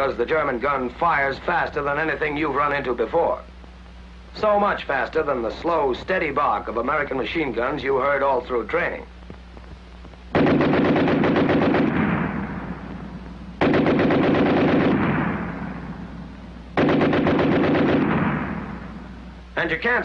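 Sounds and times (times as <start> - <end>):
machine gun bursts with echo: 10.3 - 19.2.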